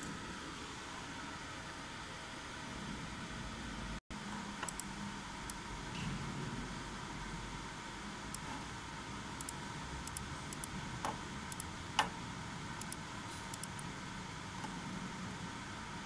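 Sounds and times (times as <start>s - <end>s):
faint steady hum: 0.0s - 16.0s
sharp clicks: 4.6s - 4.9s, 9.4s - 12.1s, 12.8s - 13.8s
light ticks: 9.4s - 12.1s, 12.8s - 13.8s.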